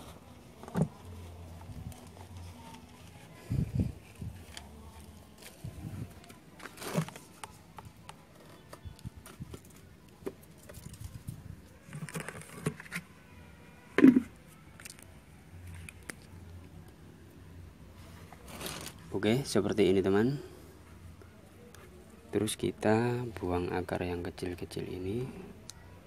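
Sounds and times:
potting media rustling: 0.0s - 13.2s, 18.0s - 19.2s
plastic pot knock: 14.0s - 14.3s.

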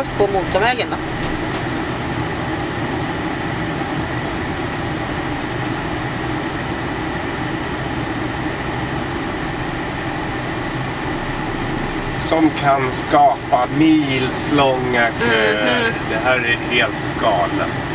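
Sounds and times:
faint steady whine: 0.0s - 17.9s
vehicle engine drone: 0.0s - 17.9s.

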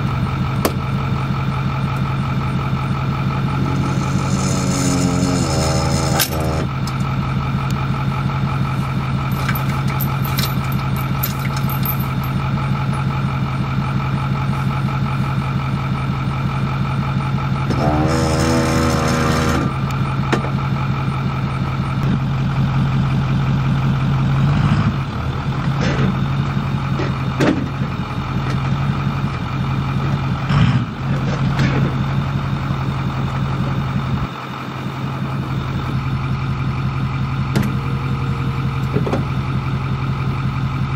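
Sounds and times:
truck engine idling: 0.0s - 40.9s
short pitched sound: 3.2s - 6.7s.

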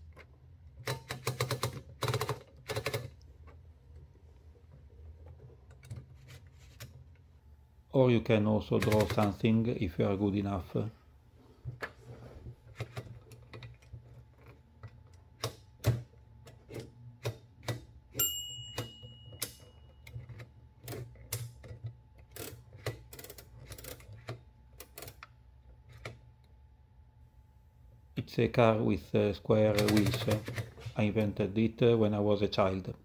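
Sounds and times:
typewriter carriage ratcheting: 0.8s - 3.2s, 8.8s - 9.4s, 19.4s - 25.2s, 29.7s - 30.7s
short high ring: 18.2s - 19.9s.

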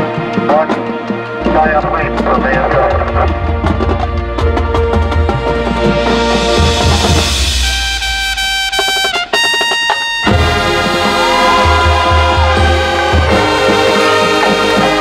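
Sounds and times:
marching band playing: 0.0s - 15.0s
bass drum hits: 3.3s - 9.7s.

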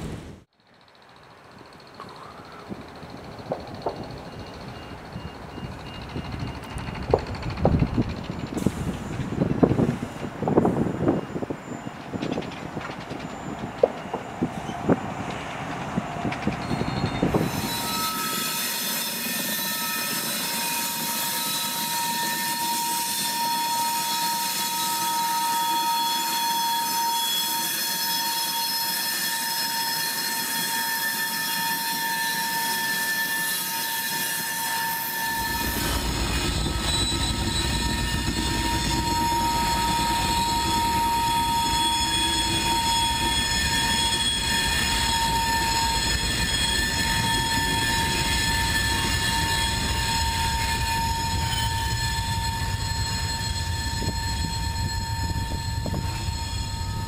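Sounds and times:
diesel locomotive rumble: 0.0s - 17.8s, 35.3s - 57.0s
train wheels squealing: 0.6s - 57.0s.

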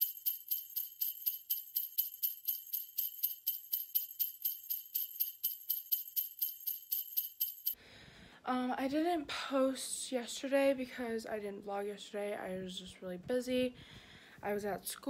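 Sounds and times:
sleigh bells jingling: 0.0s - 7.8s.

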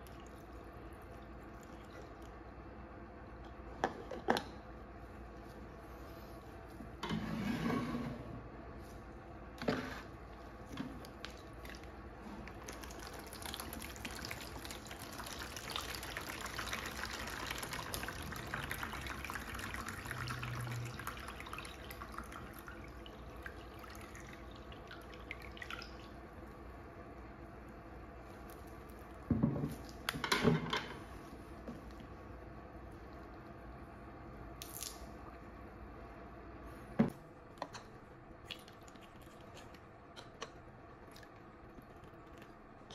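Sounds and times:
liquid pouring into plastic tub: 11.0s - 26.2s.

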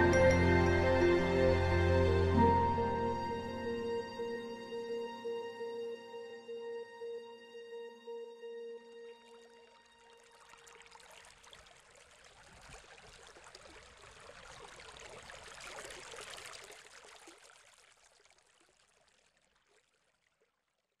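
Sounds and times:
stream running over pebbles: 9.8s - 21.0s.

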